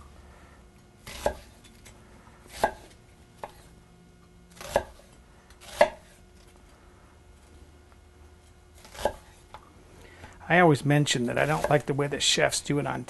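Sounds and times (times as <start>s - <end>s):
knife chopping onion on board: 1.0s - 1.6s, 2.5s - 3.7s, 4.6s - 6.2s, 8.8s - 9.4s, 11.5s - 11.9s.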